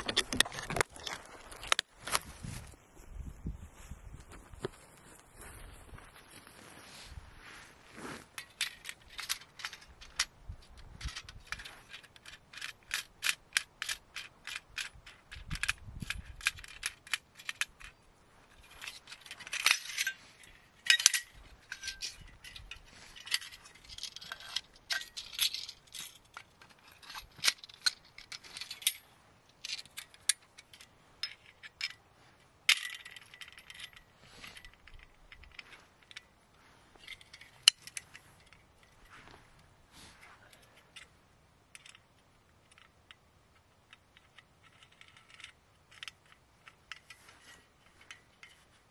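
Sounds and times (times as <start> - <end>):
metal clinks and rattles: 8.4 - 32.0, 32.6 - 36.4, 37.0 - 39.2, 40.5 - 48.9
regular metal clicks: 8.4 - 39.7, 40.5 - 48.9.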